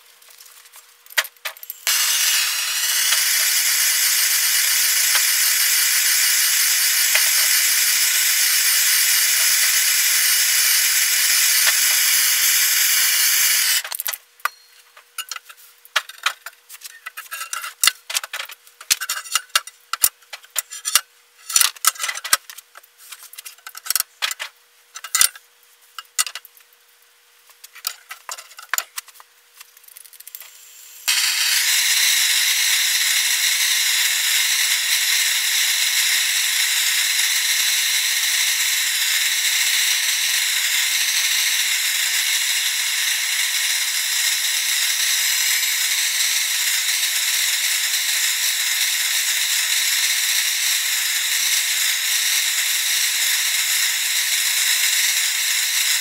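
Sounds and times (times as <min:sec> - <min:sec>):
gas torch hissing: 0:01.8 - 0:09.4.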